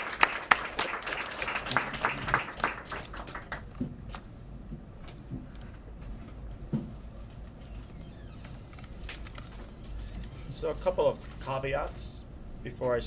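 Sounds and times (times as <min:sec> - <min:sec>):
audience applauding: 0:00.0 - 0:03.8.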